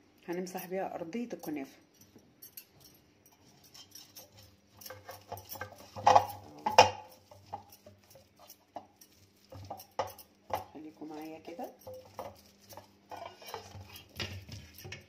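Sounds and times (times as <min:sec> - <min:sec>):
pastry brush scraping: 0:03.4 - 0:15.0.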